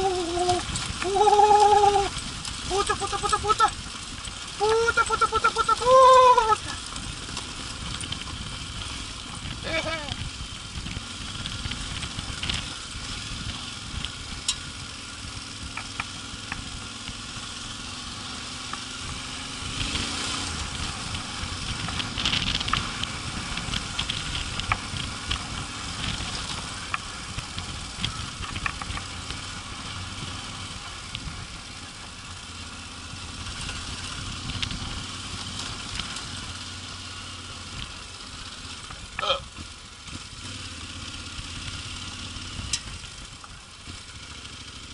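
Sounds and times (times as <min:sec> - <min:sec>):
sharp clicks and rattles: 0:00.0 - 0:14.8, 0:20.5 - 0:31.6, 0:33.5 - 0:36.5, 0:42.4 - 0:44.1
motorcycle engine running: 0:00.0 - 0:44.9
tyre and wind noise: 0:00.0 - 0:44.9.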